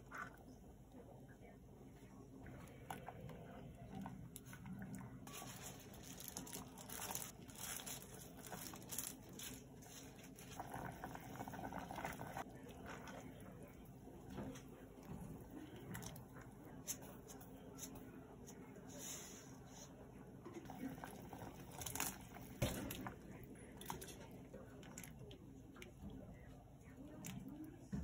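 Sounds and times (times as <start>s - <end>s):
broth simmering in a pot: 0.0s - 28.0s
plastic glove crinkling: 5.2s - 10.7s.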